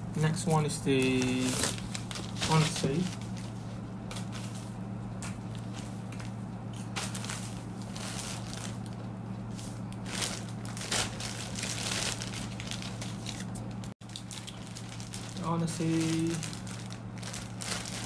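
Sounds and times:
steady low hum: 0.0s - 18.0s
plastic bag crinkling: 0.8s - 3.5s, 6.9s - 9.1s, 10.0s - 18.0s.

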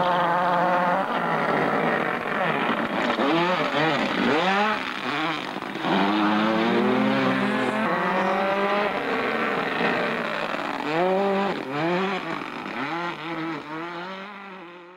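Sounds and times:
rally car engine revving: 0.0s - 14.9s.

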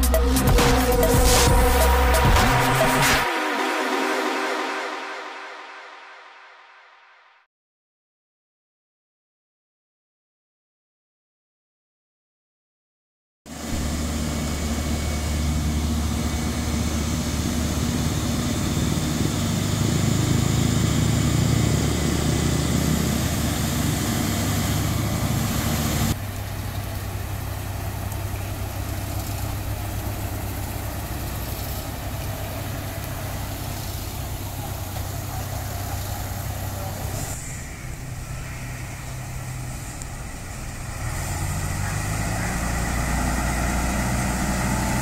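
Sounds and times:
heavy diesel engine rumble: 13.5s - 45.0s.

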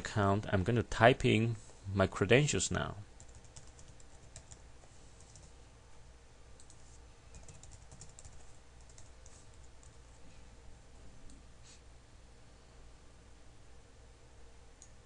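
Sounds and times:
low steady hum: 0.0s - 15.0s
typing on computer keyboard: 3.2s - 4.6s, 6.6s - 10.0s.

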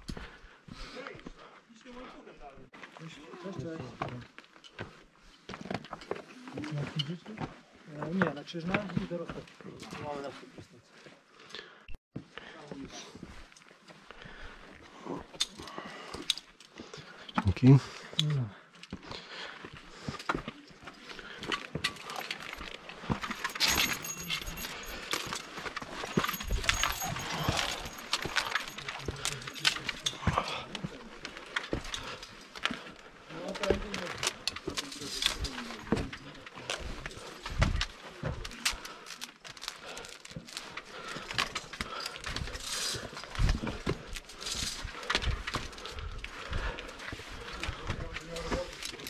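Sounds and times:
metal chain clinking against rock: 20.1s - 49.0s.

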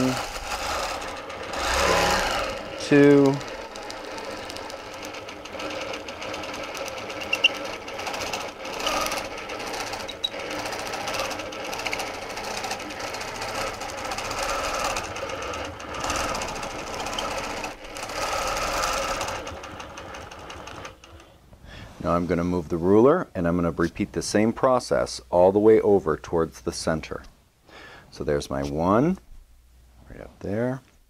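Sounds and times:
quilting machine stitching: 0.0s - 21.4s.

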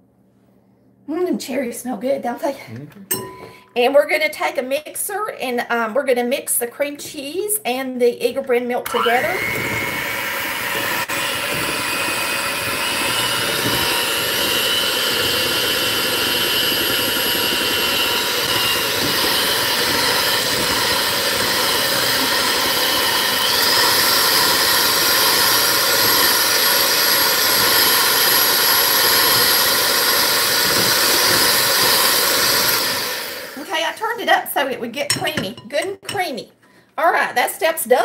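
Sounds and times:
electric hand mixer whining: 8.8s - 34.3s.

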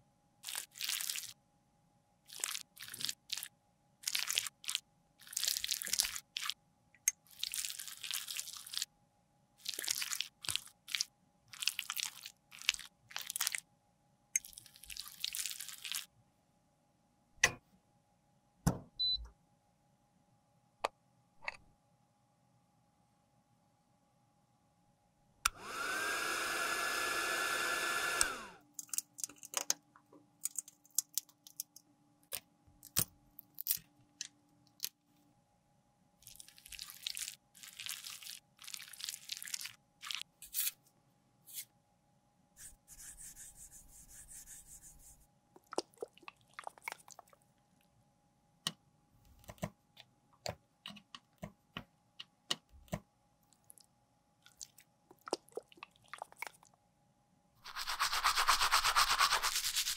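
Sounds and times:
heat gun whining hiss: 25.5s - 28.5s.

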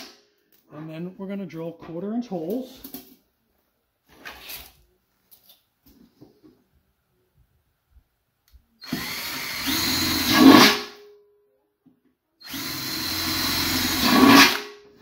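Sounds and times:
cordless drill boring metal: 8.8s - 11.0s, 12.4s - 14.7s.

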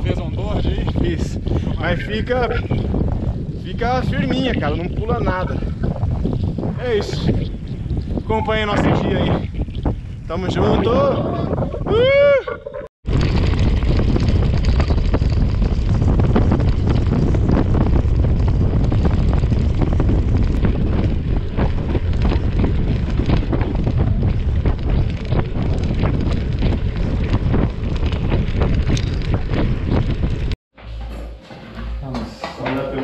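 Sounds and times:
wind buffeting microphone: 0.0s - 30.6s
tyres rumbling on dirt: 13.0s - 30.6s.

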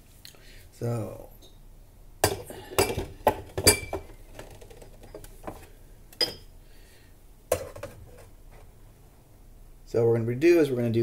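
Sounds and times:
glassware and metal clinking: 2.2s - 4.1s, 6.2s - 6.5s.

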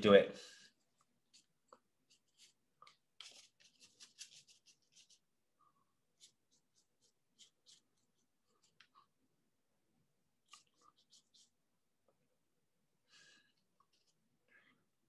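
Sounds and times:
paintbrush strokes on paper: 0.4s - 9.2s, 10.4s - 11.6s, 13.8s - 14.2s.

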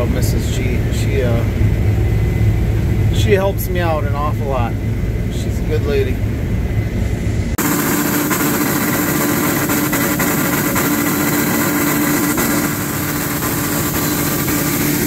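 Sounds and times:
tractor driving grain auger: 0.0s - 1.8s, 7.6s - 15.0s.

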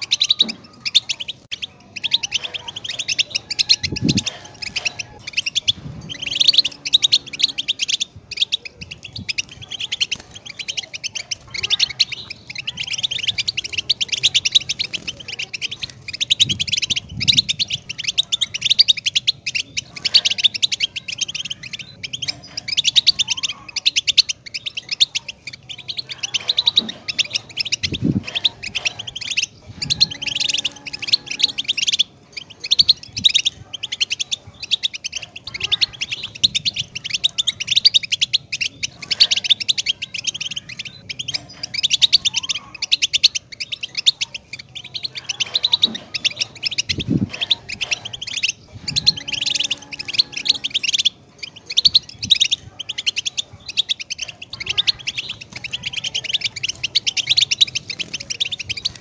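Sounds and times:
goldfinch twittering and trills: 0.0s - 59.0s.

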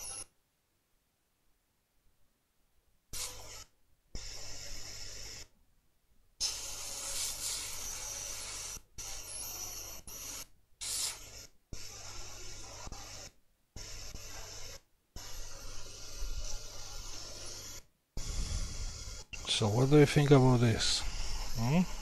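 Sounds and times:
hot air blower hissing: 6.4s - 8.8s, 15.2s - 22.0s.

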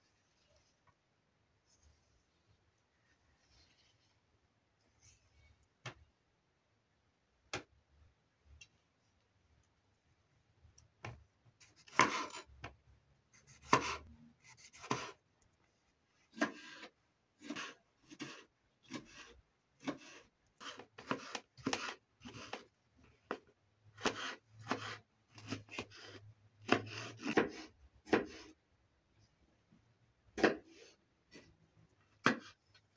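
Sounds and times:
knife cutting on cutting board: 11.7s - 12.4s, 13.5s - 15.2s, 16.4s - 22.7s, 24.0s - 28.5s.

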